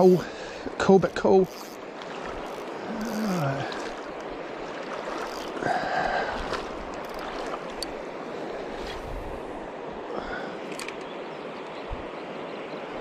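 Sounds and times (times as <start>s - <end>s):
river running over gravel: 0.0s - 9.8s.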